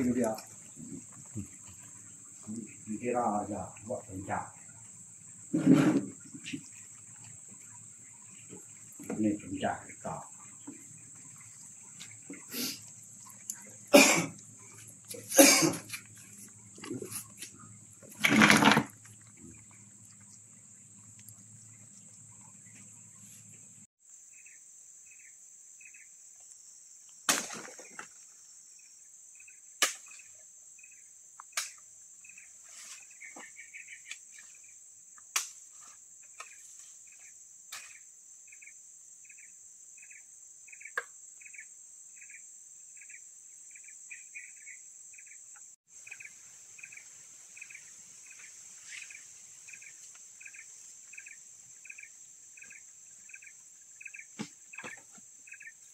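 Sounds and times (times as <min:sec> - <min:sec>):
high insect drone: 0:00.0 - 0:55.9.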